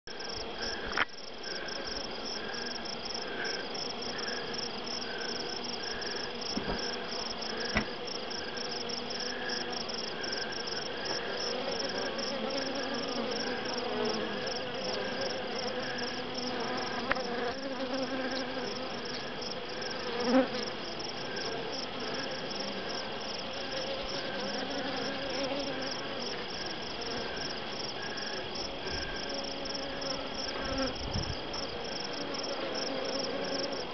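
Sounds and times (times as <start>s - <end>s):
honey bees buzzing: 0.1s - 33.9s
insects chirping high-pitched: 0.1s - 33.9s.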